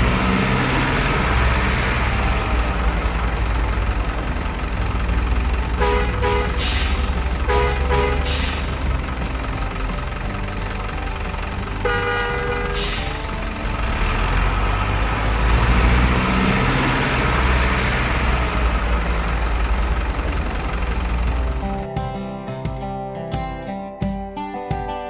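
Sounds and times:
diesel truck engine running: 0.0 - 23.8
truck horn toot: 5.6 - 8.9, 11.8 - 14.0.

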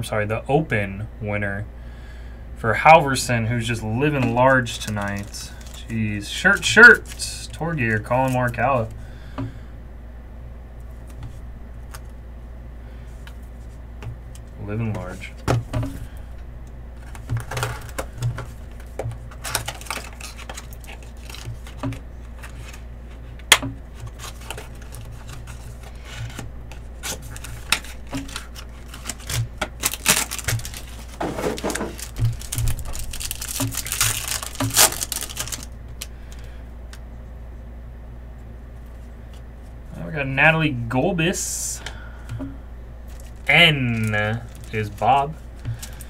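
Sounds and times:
steady low hum: 0.0 - 46.0
foil wrapper crinkling: 4.0 - 8.9, 17.0 - 22.8, 23.4 - 36.5, 43.1 - 46.0.

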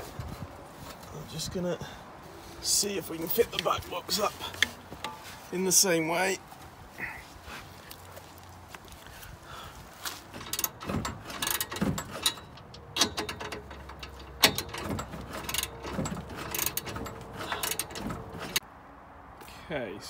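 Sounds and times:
ratchet spanner clicking: 10.4 - 18.6.

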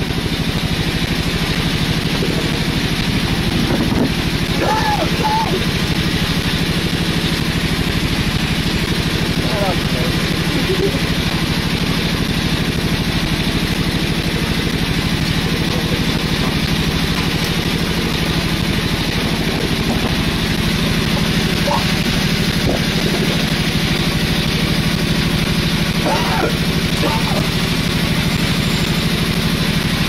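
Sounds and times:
boat engine running: 0.0 - 30.0.

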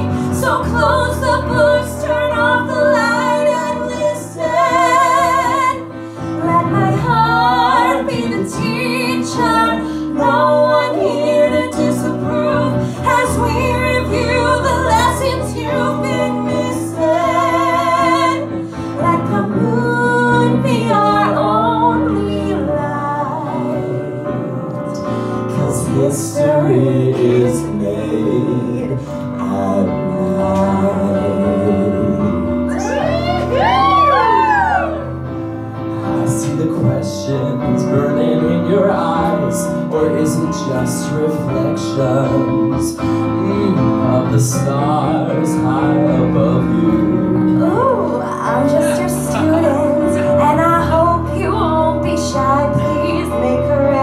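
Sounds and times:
woman singing: 0.0 - 24.0, 47.5 - 54.0
musical accompaniment: 0.0 - 54.0
man singing: 25.5 - 33.0, 36.1 - 47.6.

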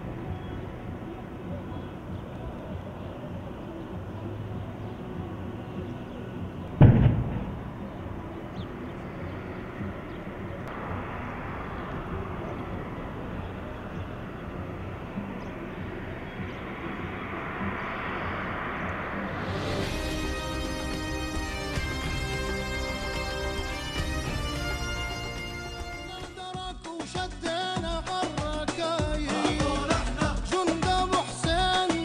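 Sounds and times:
vehicle engines rumbling: 0.0 - 26.1
loud explosive blast: 6.8 - 8.0.

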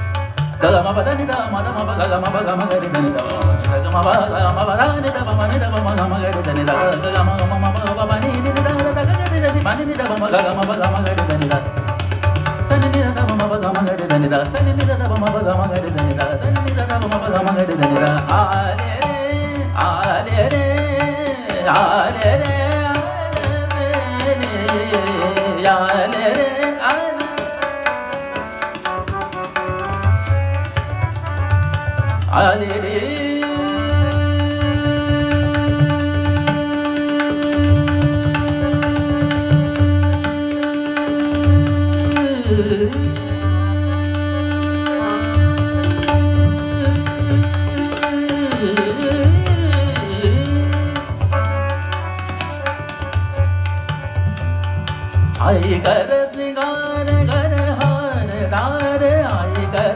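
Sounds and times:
tanpura drone: 0.0 - 56.1
harmonium: 0.0 - 59.9
tabla: 0.0 - 59.9
person singing classical vocals: 32.3 - 51.2, 55.4 - 59.9.

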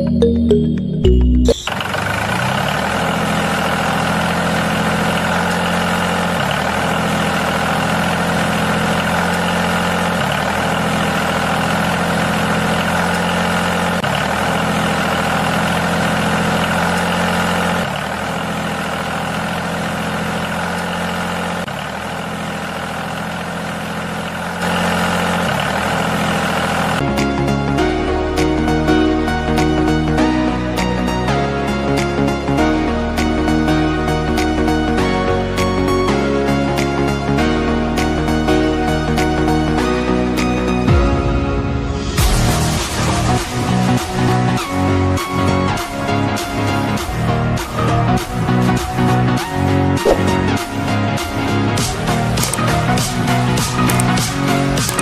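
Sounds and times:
tractor engine idling: 0.0 - 27.0, 42.2 - 55.0.

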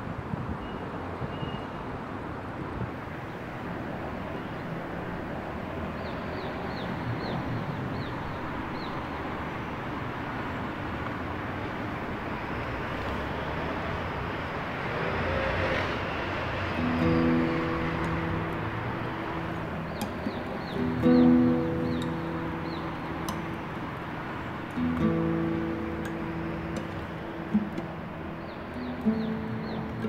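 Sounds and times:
city street traffic: 0.0 - 30.0
vehicle passing: 3.1 - 30.0
music: 16.6 - 30.0.

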